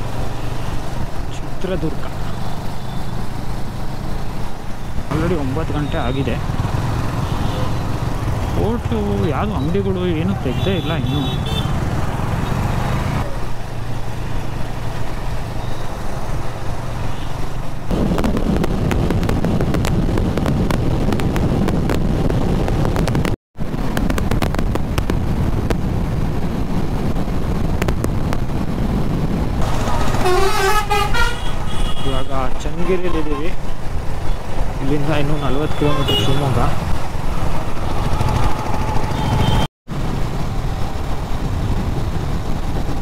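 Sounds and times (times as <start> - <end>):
motorcycle engine cruising: 0.0 - 21.9, 24.8 - 32.0, 32.8 - 43.0
wind and road noise: 0.0 - 43.0
vehicle horns tooting: 10.4 - 11.8, 29.9 - 32.5, 35.4 - 36.7, 38.0 - 39.7.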